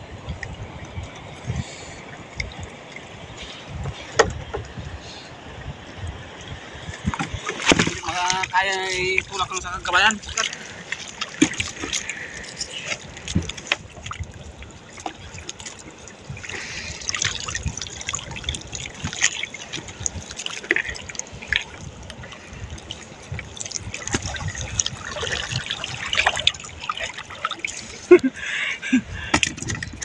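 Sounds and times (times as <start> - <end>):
water trickling and dripping: 0.2 - 5.2, 6.0 - 28.4
small splashes and knocks: 6.9 - 14.3, 14.9 - 28.2, 29.3 - 30.0.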